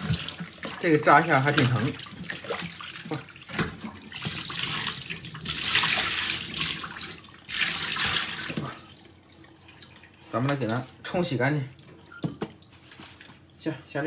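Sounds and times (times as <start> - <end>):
tap water running into sink: 0.0 - 10.9.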